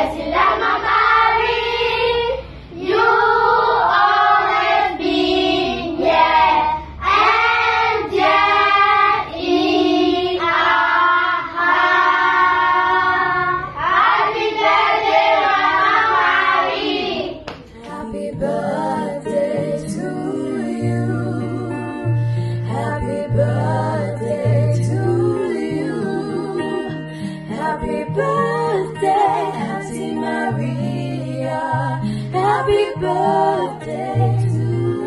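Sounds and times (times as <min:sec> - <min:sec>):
children singing: 0:00.0 - 0:22.1, 0:27.6 - 0:35.0
acoustic guitar: 0:17.6 - 0:35.0
women singing: 0:17.7 - 0:35.0.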